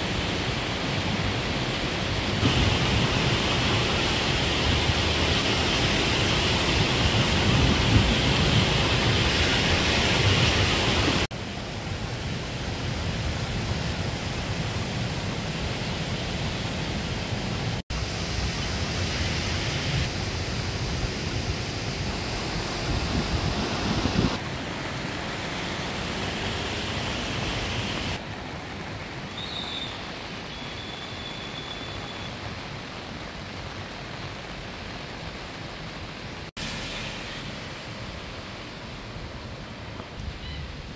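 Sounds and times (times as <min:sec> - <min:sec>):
flooded stream rushing: 0:00.0 - 0:40.9
rain: 0:00.0 - 0:40.9.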